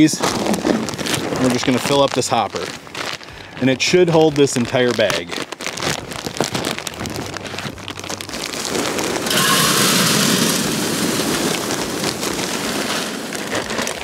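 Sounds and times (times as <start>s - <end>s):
plastic bag crinkling: 0.0s - 14.0s
pellets rattling into metal hopper: 8.0s - 14.0s.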